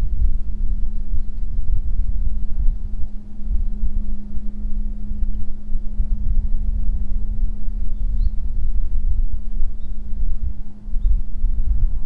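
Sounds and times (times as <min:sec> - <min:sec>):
constant low hum: 0:00.0 - 0:12.0
wind buffeting microphone: 0:00.0 - 0:12.0.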